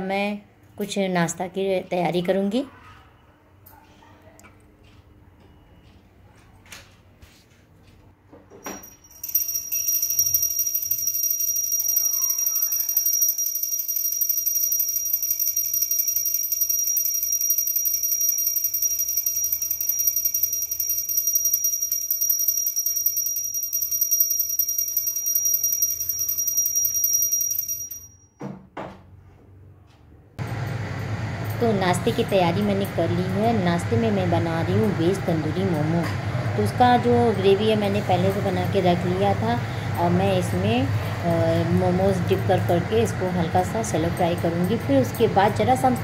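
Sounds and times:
small hand bell ringing rapidly: 0:08.7 - 0:28.4, 0:41.6 - 0:46.0.

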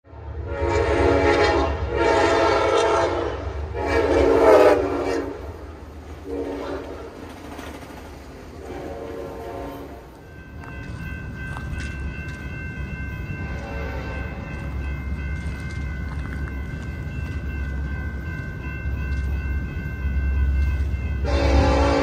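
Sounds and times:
freight train rumble: 0:00.1 - 0:22.0
train air horn blasts: 0:00.3 - 0:07.1, 0:08.6 - 0:10.1, 0:21.2 - 0:22.0.

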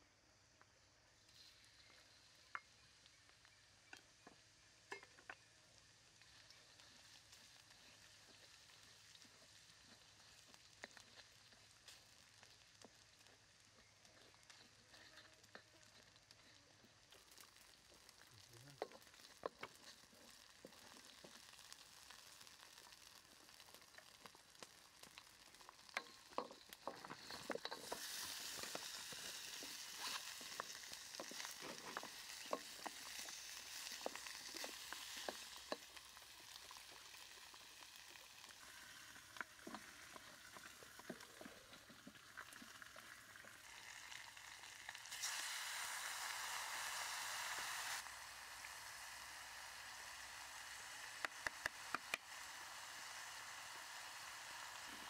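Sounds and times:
frying sizzle in a wok: 0:00.0 - 0:55.0
wooden spoon scraping a pan: 0:14.2 - 0:22.2, 0:23.7 - 0:36.2.

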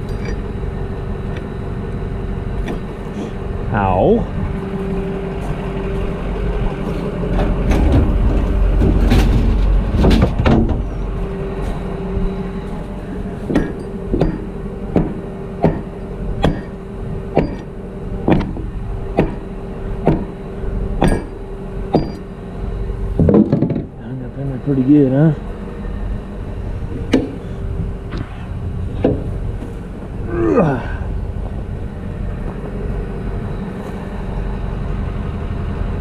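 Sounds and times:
tools clattering: 0:00.0 - 0:00.5
engine idling: 0:00.0 - 0:36.0
hammer blows on metal: 0:13.5 - 0:17.7, 0:21.0 - 0:22.2.

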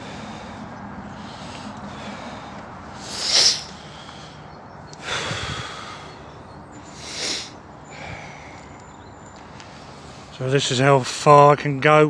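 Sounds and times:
person breathing hard through nose: 0:00.0 - 0:08.8.

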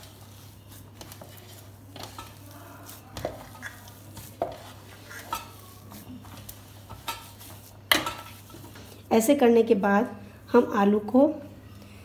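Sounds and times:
potato being mashed by hand: 0:00.0 - 0:08.8.

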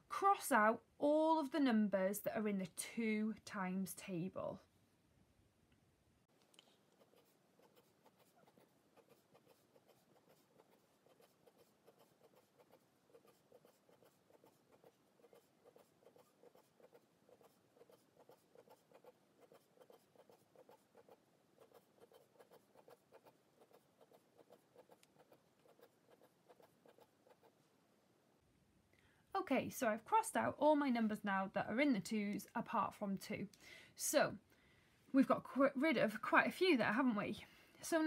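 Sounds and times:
felt-tip pen scratching paper: 0:06.9 - 0:27.6.

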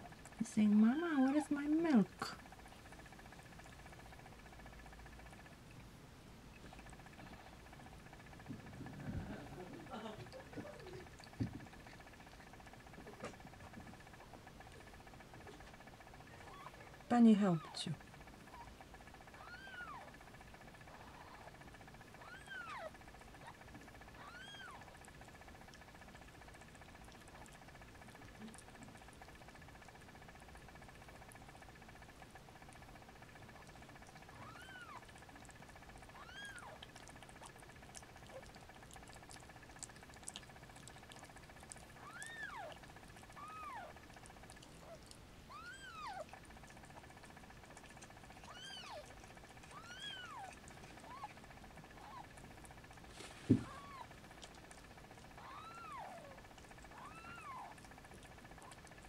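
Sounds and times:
small clicks and rustling: 0:18.2 - 0:59.0
kittens mewing: 0:18.4 - 0:24.9, 0:34.3 - 0:35.1, 0:36.1 - 0:36.9, 0:42.0 - 0:44.0, 0:44.8 - 0:46.4, 0:48.2 - 0:52.6, 0:53.5 - 0:54.2, 0:55.3 - 0:57.8
kitten mewing: 0:48.4 - 0:51.4, 0:55.4 - 0:56.4.

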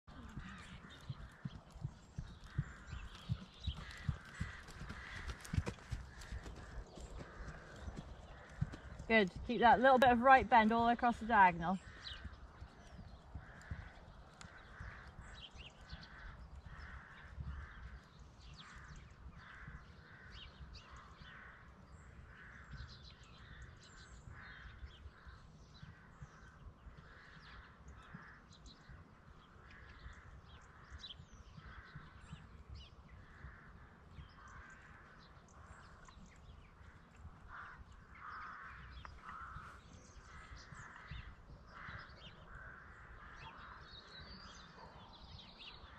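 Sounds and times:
crows cawing: 0:03.8 - 0:09.0, 0:37.5 - 0:43.9.

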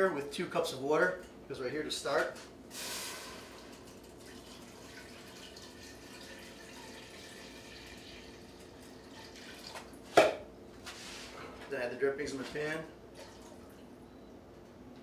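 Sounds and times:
liquid trickling into a saucepan: 0:02.8 - 0:09.9.

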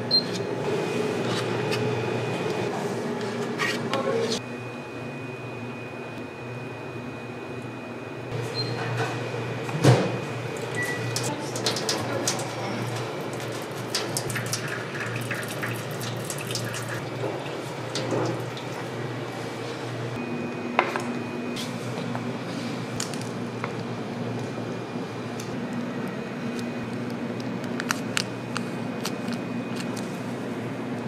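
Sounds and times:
water splashing into steel sink: 0:11.5 - 0:12.4, 0:13.9 - 0:17.0.

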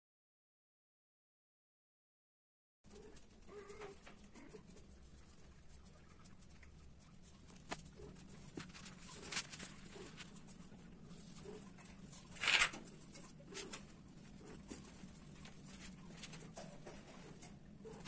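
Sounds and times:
cats calling low: 0:02.9 - 0:04.8
faint steady hum: 0:02.9 - 0:18.0.

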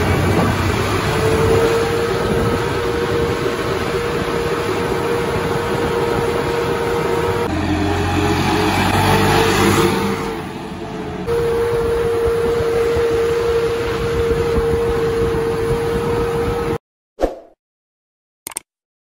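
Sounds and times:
steady whine: 0:00.0 - 0:07.6, 0:10.7 - 0:16.8
diesel tractor engine running: 0:00.0 - 0:16.8.

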